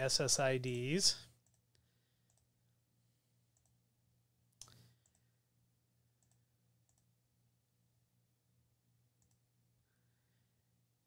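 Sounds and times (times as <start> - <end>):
computer mouse clicks: 1.4 - 2.5, 3.5 - 3.8, 4.6 - 5.3, 6.2 - 7.1, 9.2 - 9.4.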